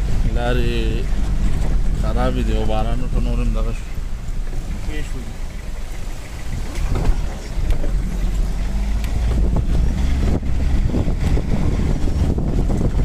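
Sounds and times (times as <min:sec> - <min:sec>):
engine and tyres rumbling: 0:00.0 - 0:13.0
vehicle body knocks and rattles: 0:01.0 - 0:02.1, 0:06.4 - 0:08.4.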